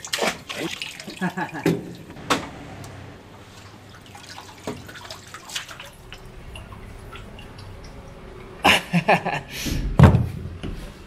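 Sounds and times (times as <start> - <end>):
water lapping and dripping: 0.0 - 2.2, 3.3 - 8.7.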